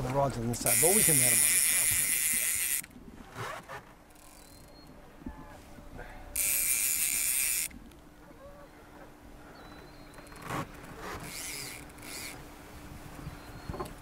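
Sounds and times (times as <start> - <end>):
fishing reel drag ratcheting: 0.5 - 2.9, 4.1 - 4.7, 6.4 - 7.8, 11.1 - 12.4.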